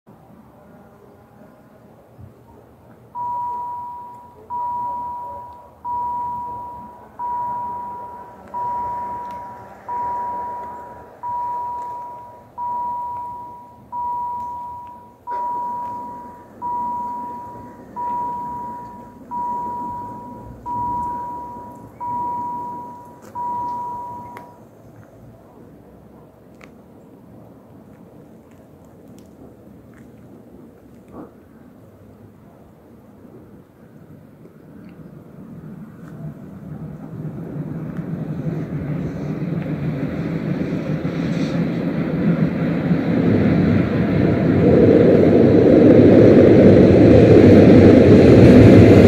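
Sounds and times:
level crossing electronic warning tone: 3.2s - 24.6s.

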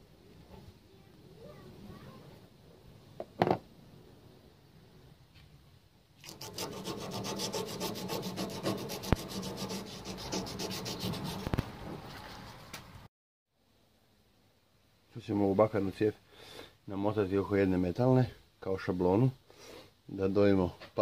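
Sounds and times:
hand tool rasping: 6.2s - 11.6s.

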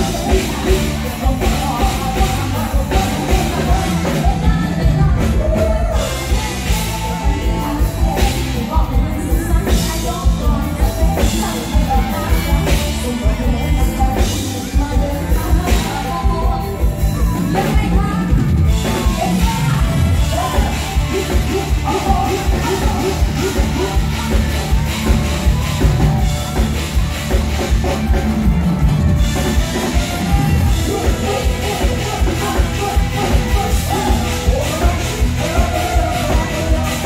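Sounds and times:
woman singing into a microphone: 0.0s - 24.8s
live band music: 0.0s - 37.0s
steady drum beat: 0.0s - 37.0s.

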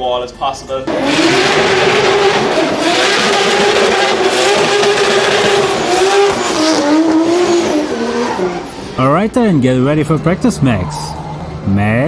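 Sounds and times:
car engine at high revs: 0.8s - 9.0s.

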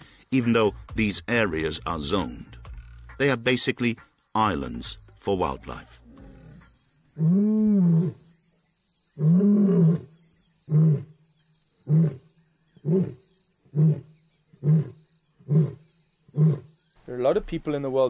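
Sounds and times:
lion roaring: 6.0s - 8.3s, 9.2s - 11.2s, 11.8s - 16.7s.

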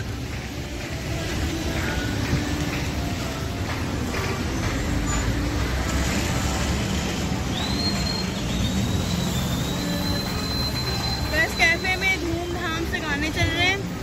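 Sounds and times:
heavy road traffic rumble: 0.0s - 14.0s
high whistle-like tone: 7.5s - 12.6s.

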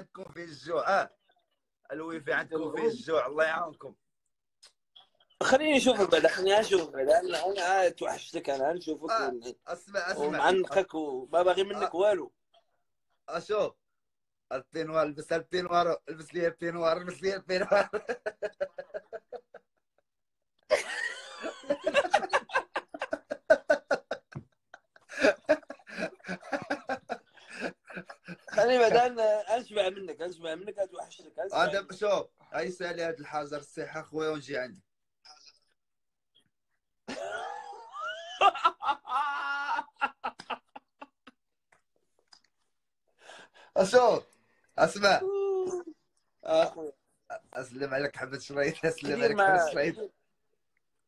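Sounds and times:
man laughing heartily: 17.6s - 19.8s, 20.7s - 28.8s, 37.1s - 41.4s.

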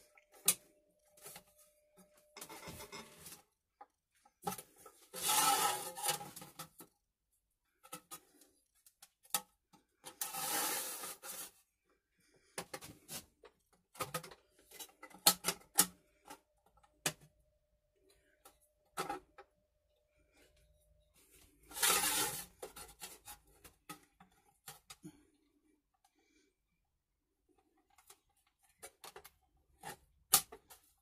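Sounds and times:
metal scraping rubs: 4.8s - 6.6s, 10.1s - 11.6s, 21.2s - 23.6s.

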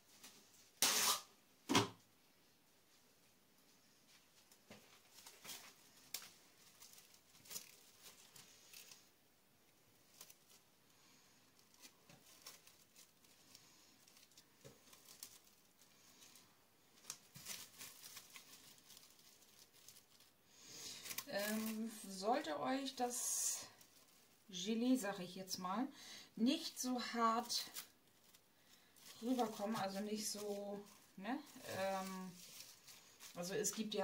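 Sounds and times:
cling film crinkling: 4.4s - 9.2s, 9.9s - 24.6s, 26.6s - 34.0s.

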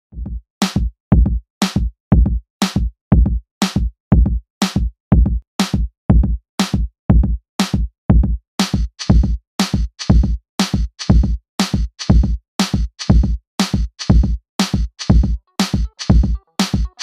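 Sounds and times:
electronic drum beat: 0.2s - 17.0s
background music: 15.2s - 17.0s.

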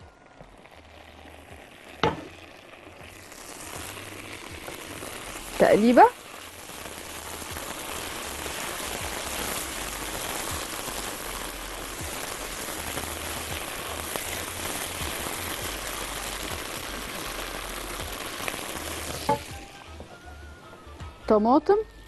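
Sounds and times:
food sizzling in oil: 0.0s - 20.2s
spatula stirring in pan: 3.0s - 19.5s.

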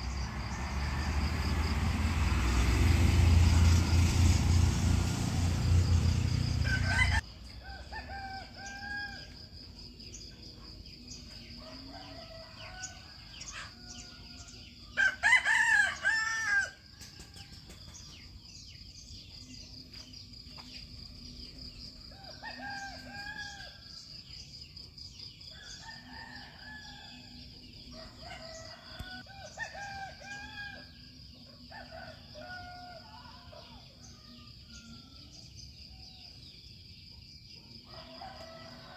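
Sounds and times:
passing vehicle noise: 0.0s - 7.2s
insects droning: 0.0s - 38.9s
rooster crowing: 5.4s - 9.4s, 11.6s - 17.5s, 22.1s - 24.0s, 25.5s - 31.0s, 31.6s - 35.3s, 37.9s - 38.9s.

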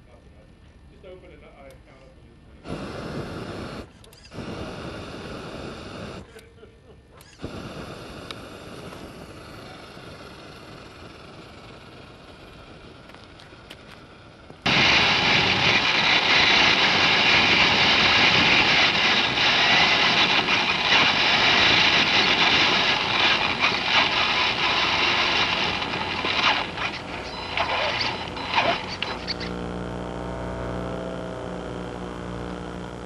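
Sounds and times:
toy truck motor whir: 3.6s - 4.5s, 7.2s - 14.6s, 15.5s - 29.7s.

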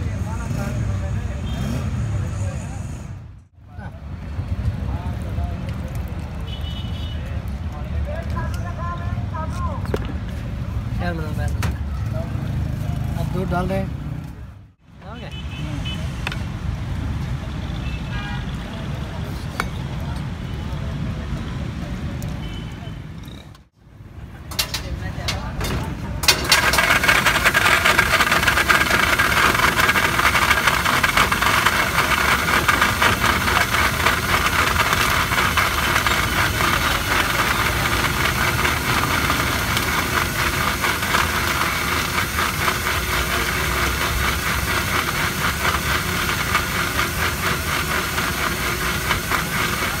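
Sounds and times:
blender motor running: 26.5s - 50.0s.

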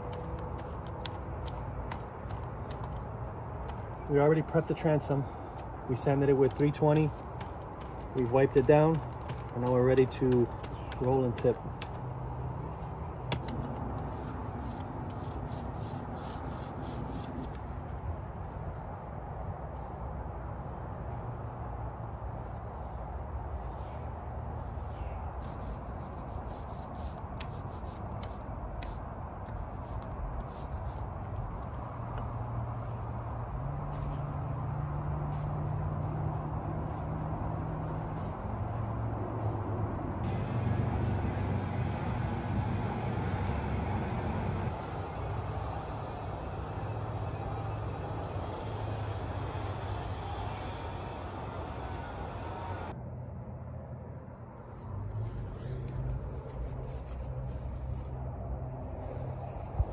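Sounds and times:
paint roller rubbing: 0.0s - 5.3s, 6.0s - 12.0s, 13.3s - 17.6s, 25.4s - 31.5s, 40.2s - 52.9s
low engine drone: 31.8s - 57.8s.

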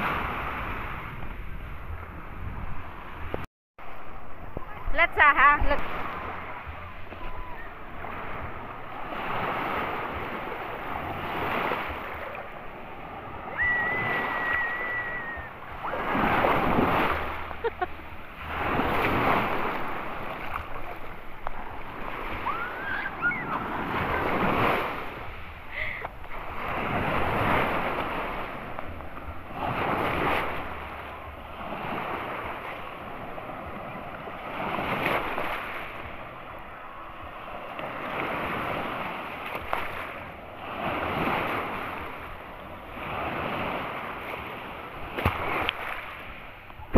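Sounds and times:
small waves breaking: 0.0s - 46.9s.

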